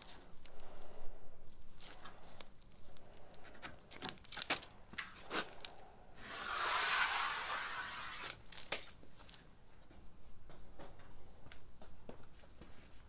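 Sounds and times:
tape measure blade whirring: 6.2 - 8.4.

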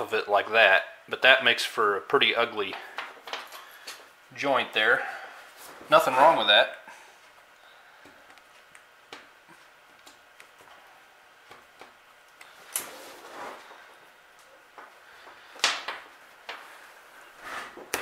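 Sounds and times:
braided wire rustling: 11.4 - 18.0.

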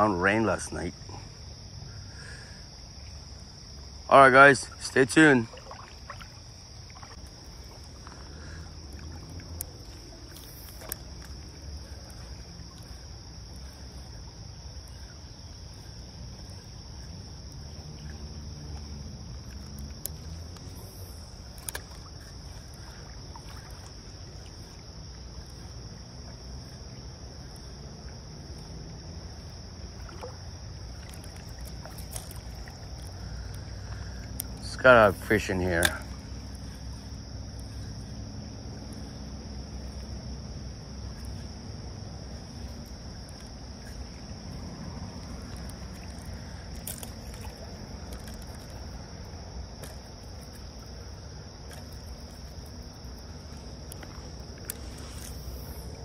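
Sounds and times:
insects humming: 0.0 - 56.0
creek water rushing: 3.6 - 15.2, 15.9 - 48.2.

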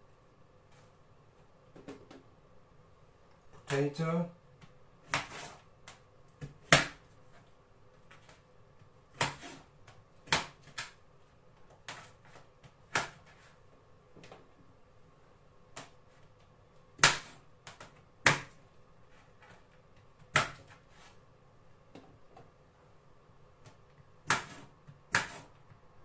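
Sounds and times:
knife chopping on cutting board: 5.0 - 5.6, 9.1 - 11.0, 12.9 - 13.4, 17.0 - 18.6, 20.2 - 20.8, 24.2 - 25.6.

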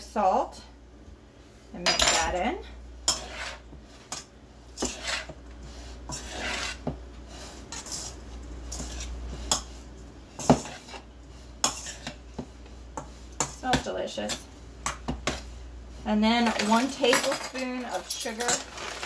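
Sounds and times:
metal spoon scraping steel bowl: 3.1 - 4.2, 4.8 - 5.4, 6.1 - 6.8.

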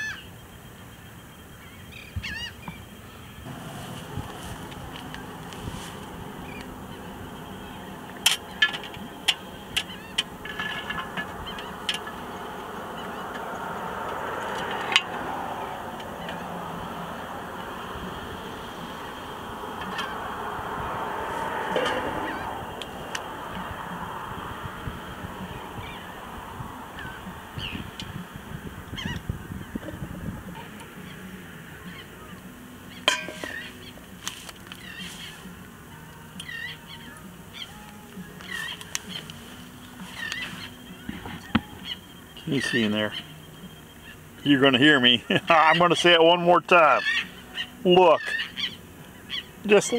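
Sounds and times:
birds honking: 0.0 - 49.9
steady hiss: 3.4 - 12.9
metal tongs clanking on bowl: 33.1 - 33.7.

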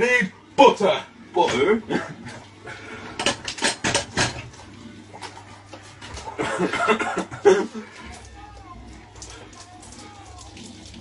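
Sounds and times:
kitchen things clattering: 3.1 - 8.2.

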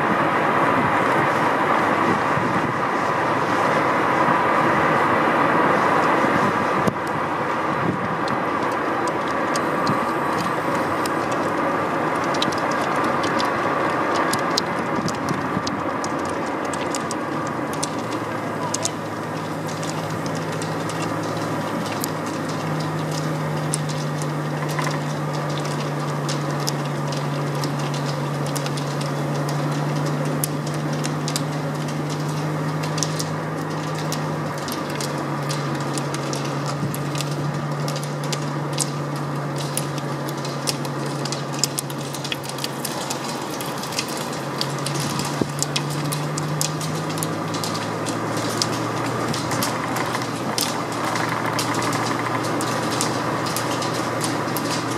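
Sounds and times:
vehicle engine running: 0.0 - 54.9.

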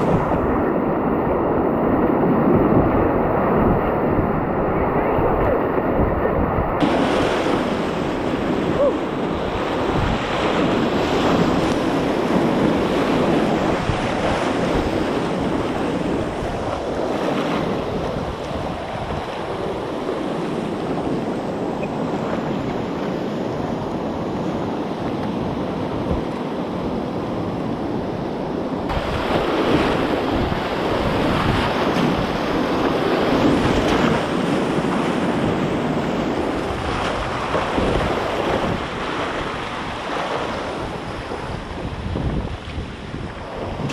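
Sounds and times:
whitewater rapids rushing: 6.8 - 26.5.

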